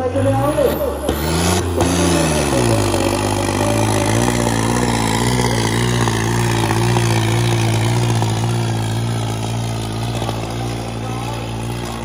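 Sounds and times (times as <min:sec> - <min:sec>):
tractor diesel engine under load: 0:00.0 - 0:12.0.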